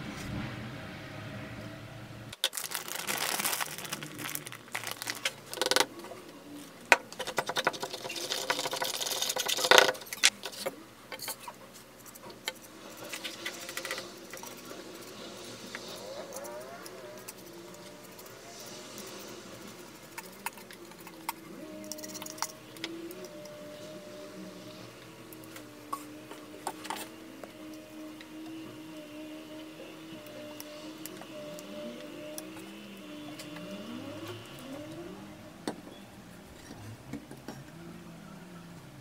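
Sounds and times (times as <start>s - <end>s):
brush scraping slurry in bowl: 7.6s - 10.7s.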